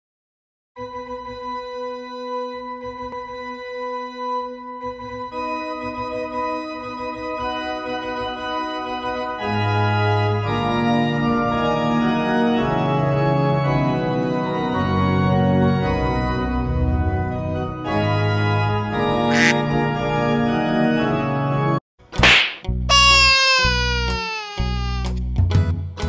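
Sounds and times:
organ music: 5.3 - 21.8.

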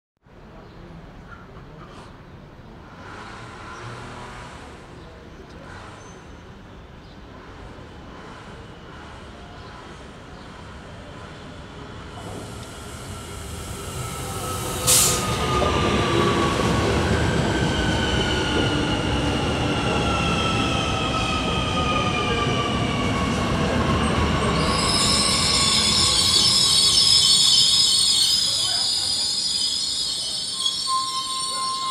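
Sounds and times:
high brake squeal: 12.2 - 16.7, 24.4 - 31.9.

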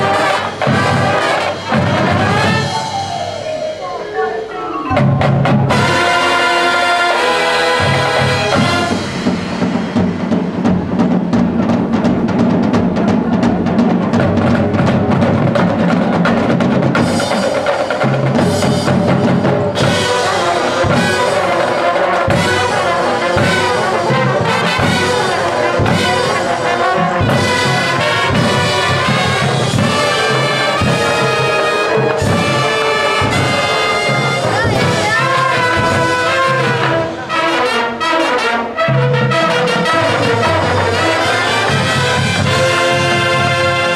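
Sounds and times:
accented percussion hits: 0.0 - 43.9
marching band playing: 0.0 - 43.9.

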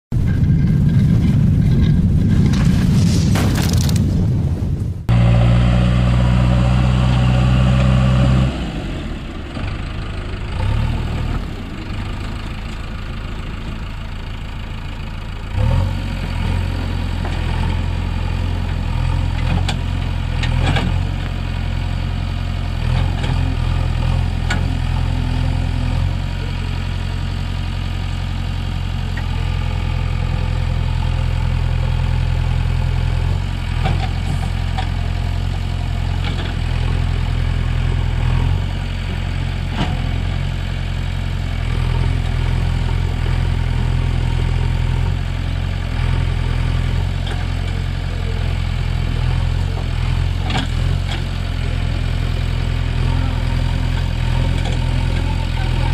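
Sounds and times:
diesel engine running: 0.1 - 2.9, 5.0 - 55.9.

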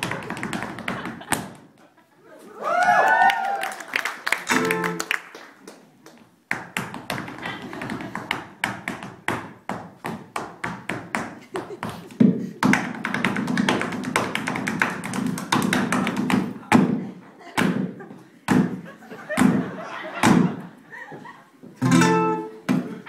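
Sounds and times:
dancer's foot stamps: 0.0 - 1.6, 6.5 - 17.0, 17.6 - 20.6.

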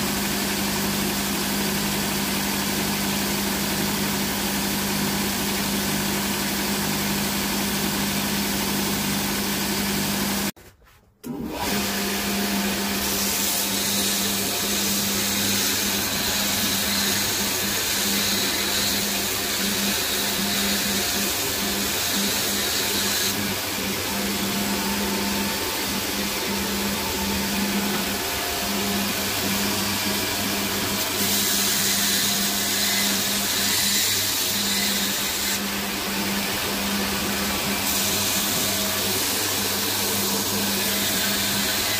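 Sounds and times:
belt grinder motor hum: 11.4 - 41.9
blade grinding on abrasive belt: 13.0 - 41.9.

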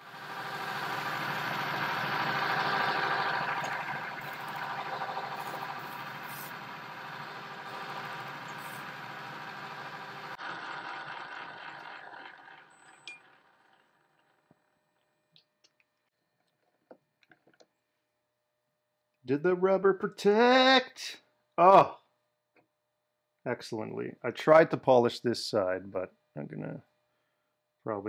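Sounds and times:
metal lathe running: 0.0 - 14.4
lathe stopping click: 0.1 - 14.3
abrasive pad sanding hiss: 0.4 - 10.4.

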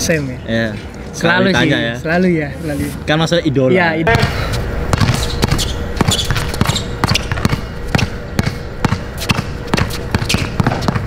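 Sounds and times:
basketball dribbled on concrete: 4.2 - 11.0.

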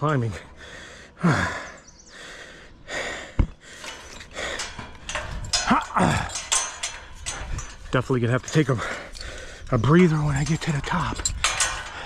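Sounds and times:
man panting: 0.3 - 5.1.

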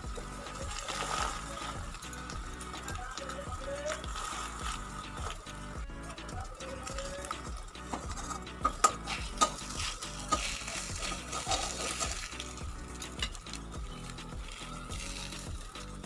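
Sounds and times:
bread sizzling in oil: 0.0 - 16.0
metal spatula scraping a pan: 7.7 - 15.4.

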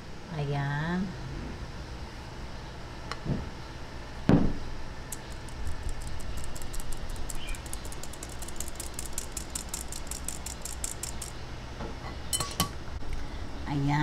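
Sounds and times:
metal sieve rattling: 5.2 - 11.3.

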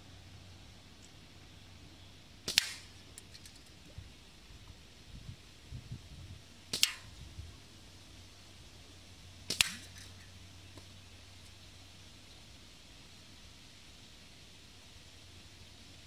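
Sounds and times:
gunshot cracks: 2.5 - 2.9, 9.5 - 10.0.

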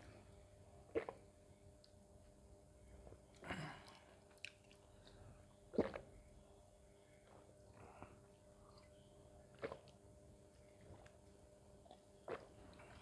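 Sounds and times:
faint steady hum: 0.0 - 13.0
man swallowing water: 0.9 - 1.2, 5.8 - 6.1, 9.6 - 10.0, 12.2 - 13.0.

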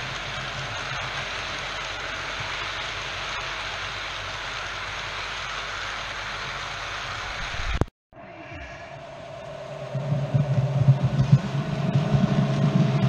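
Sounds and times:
low hum: 7.3 - 13.0.

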